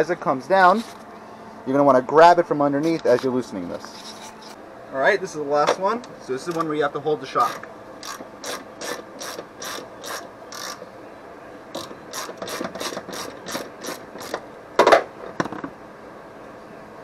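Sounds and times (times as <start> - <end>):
hand ratchet clicking: 7.4 - 10.8, 11.8 - 14.4.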